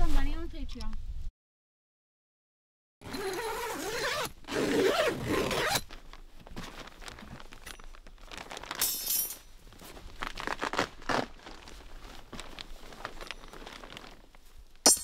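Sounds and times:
zipper pulled open: 3.0s - 5.9s, 10.4s - 11.4s
tent fabric rustling: 3.0s - 14.8s.

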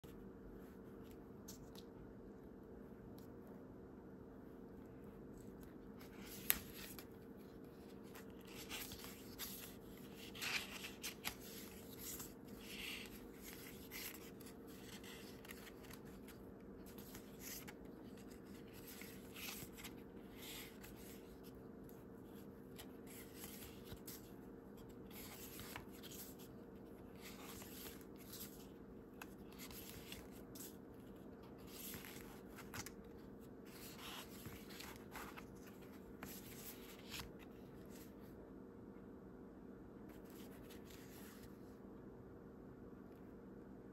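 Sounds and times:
faint steady hum: 0.0s - 43.9s
paper pages rustling: 5.3s - 38.2s.

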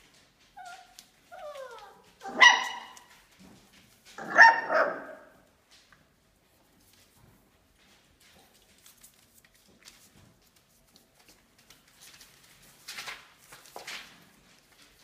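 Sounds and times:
puppies whining: 0.6s - 3.1s
high puppy barks: 1.5s - 3.2s, 4.2s - 5.4s.

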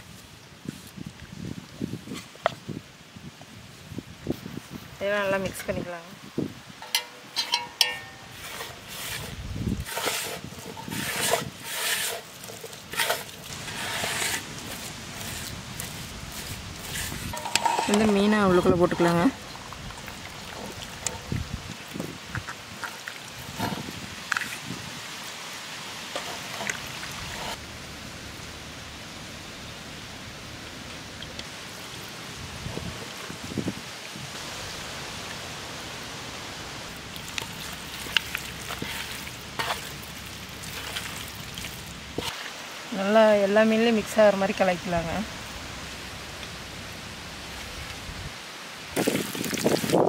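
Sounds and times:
wet handling sounds: 6.8s - 24.7s, 37.0s - 42.5s
fingers scraping paste in metal bowl: 8.4s - 18.2s.

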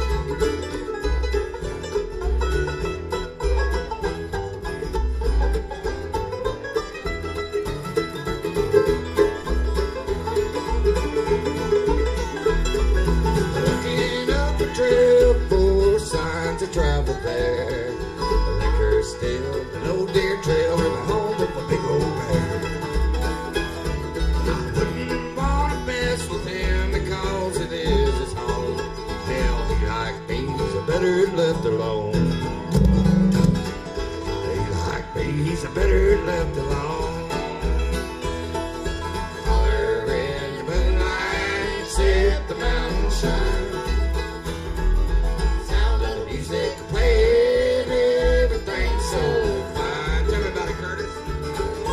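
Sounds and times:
acoustic guitar: 0.0s - 51.9s
banjo: 0.0s - 51.9s
bass beat: 0.0s - 51.9s.

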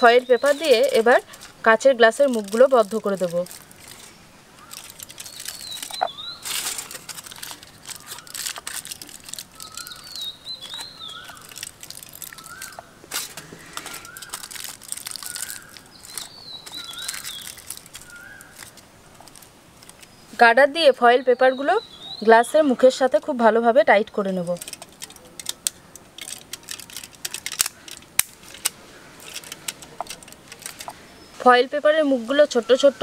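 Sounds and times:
aluminium foil crinkling: 0.0s - 20.2s, 22.9s - 33.0s
bird call: 4.0s - 7.0s, 13.5s - 18.7s.

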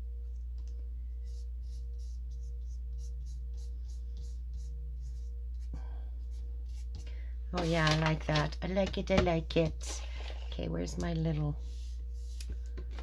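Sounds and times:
steady low hum: 0.0s - 13.0s
hand rubbing paper: 11.6s - 12.7s.

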